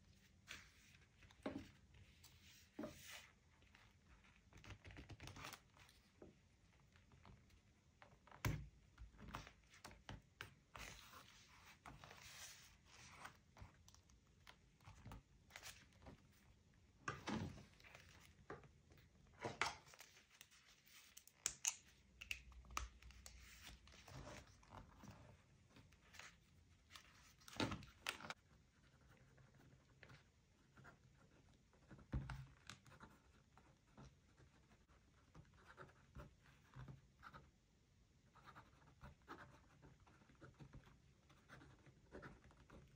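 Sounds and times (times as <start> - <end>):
paper rustling and scraping: 10.8 - 13.4.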